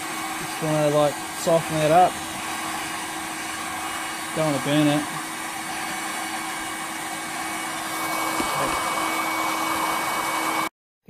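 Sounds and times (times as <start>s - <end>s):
heat gun blowing and humming: 0.0s - 10.7s.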